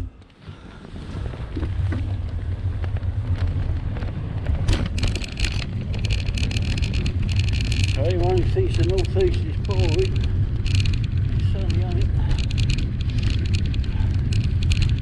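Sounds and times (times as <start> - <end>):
wind rumbling on microphone: 0.0 - 15.0
rapid ticking: 4.9 - 15.0.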